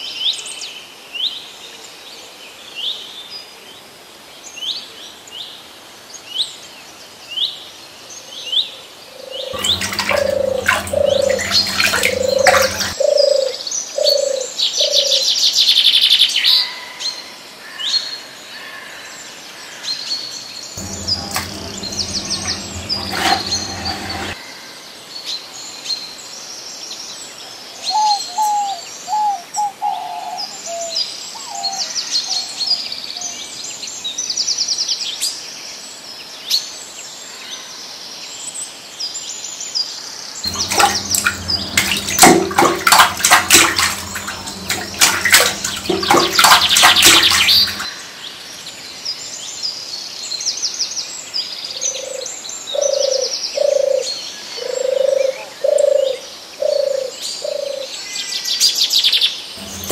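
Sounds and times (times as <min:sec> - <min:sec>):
birds chirping and trilling: 0:09.7 - 0:13.0.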